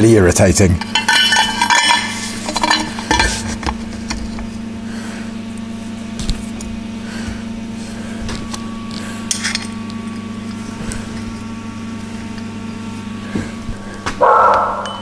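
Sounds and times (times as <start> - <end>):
steady electrical hum: 0.0 - 15.0
steel pipe clinking and rattling: 0.7 - 3.7.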